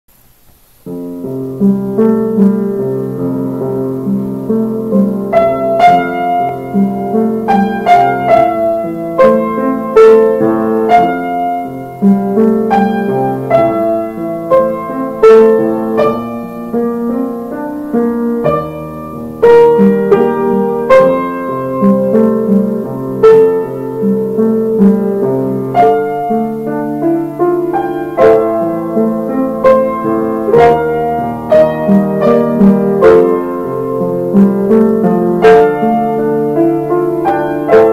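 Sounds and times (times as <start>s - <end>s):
piano music: 0.8s - 37.9s.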